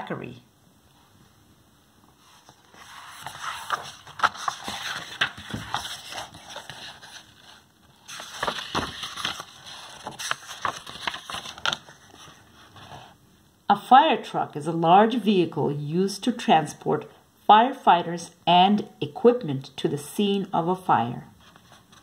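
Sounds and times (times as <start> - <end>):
book pages rustling: 2.0 - 13.2, 21.4 - 22.0.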